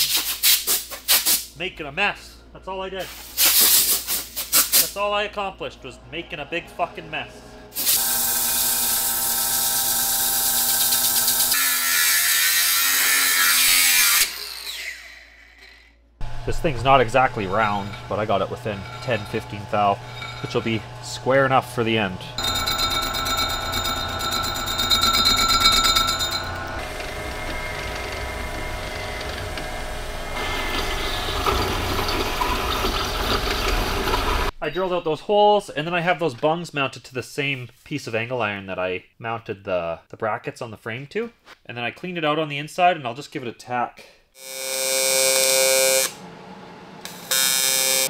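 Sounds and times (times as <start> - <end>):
drill bit cutting metal tube: 7.8 - 15.2, 16.2 - 28.2, 47.0 - 48.0
angle grinder grinding metal: 7.8 - 34.5, 44.4 - 46.2, 47.0 - 48.0
metal lathe running: 7.9 - 11.6, 16.2 - 34.5, 47.0 - 48.0
machine spindle humming: 16.2 - 34.5.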